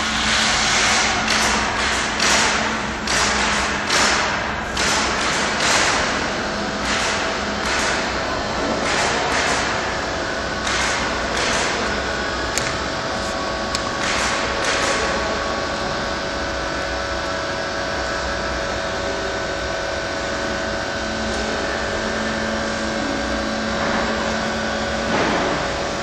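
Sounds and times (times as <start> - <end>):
mechanical drone: 0.0 - 26.0.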